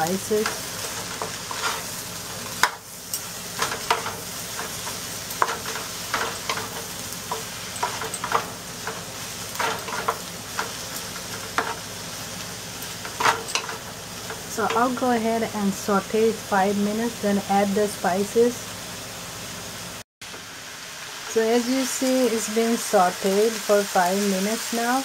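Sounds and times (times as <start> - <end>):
squash sizzling in a pan: 0.0 - 25.0
wooden spatula scraping pan: 0.4 - 1.9.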